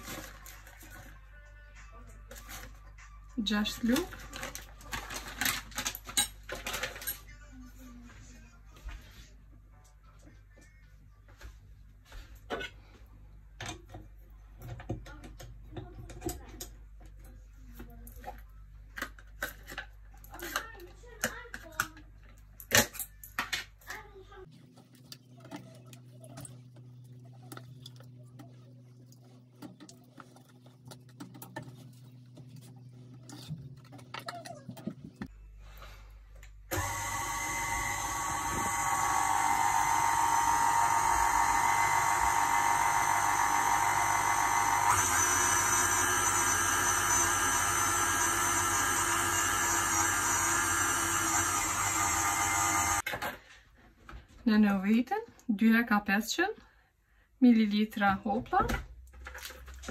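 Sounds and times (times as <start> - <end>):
stand mixer whisking cream: 36.7 - 53.0.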